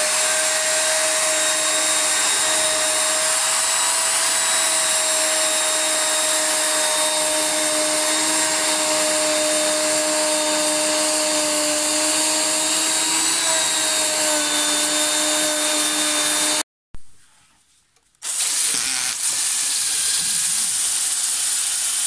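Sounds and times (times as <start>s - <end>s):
router whining: 0.0s - 16.6s, 18.2s - 22.0s.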